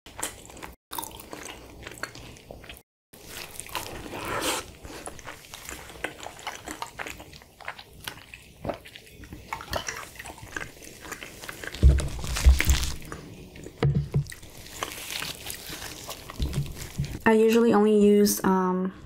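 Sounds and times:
sipping through a straw: 0:04.0 - 0:04.8.

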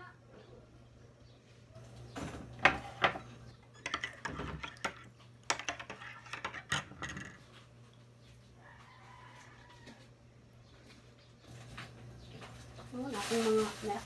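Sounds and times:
kitchen items clinking on glass: 0:02.6 - 0:07.6.

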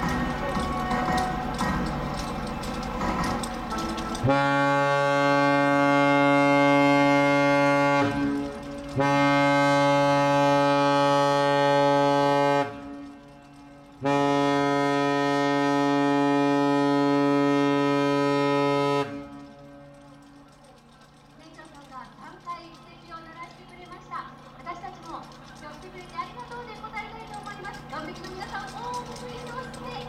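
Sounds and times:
ship's horn blasts: 0:04.2 - 0:20.3.

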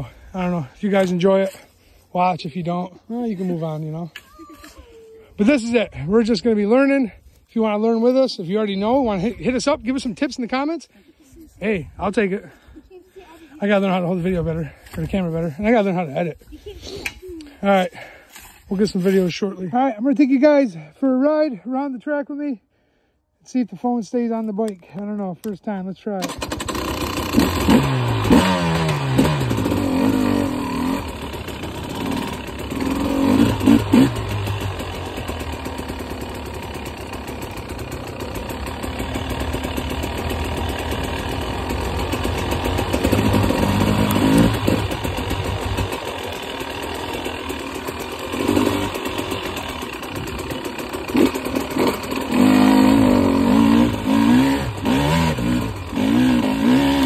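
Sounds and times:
dirt bike engine revving: 0:26.2 - 0:57.0.

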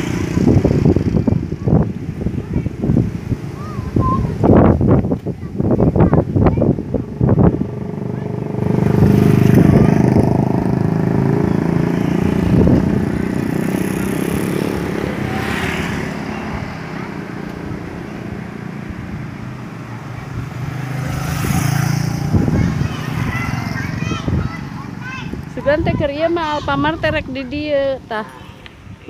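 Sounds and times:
motorcycle engine running: 0:00.0 - 0:03.6, 0:04.4 - 0:27.6.

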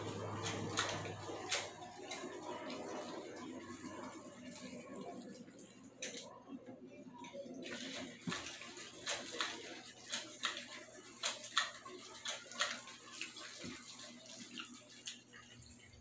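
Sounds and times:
wet chewing: 0:07.6 - 0:16.0.

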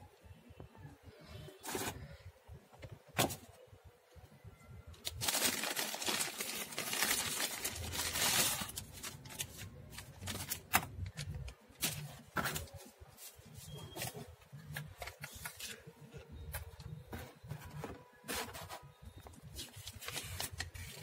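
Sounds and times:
plastic bag crinkling: 0:05.0 - 0:12.7.

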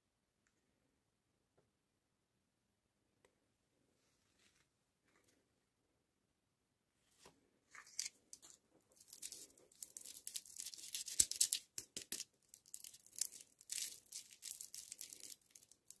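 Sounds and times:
plastic wrapper crinkling and tearing: 0:07.8 - 0:16.0.

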